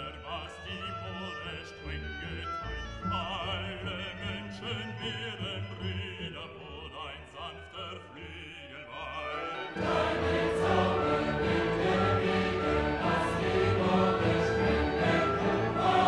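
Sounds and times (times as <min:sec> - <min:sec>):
operatic voice singing: 0:00.0 - 0:16.0
orchestral accompaniment: 0:09.0 - 0:16.0
choir singing: 0:09.2 - 0:16.0.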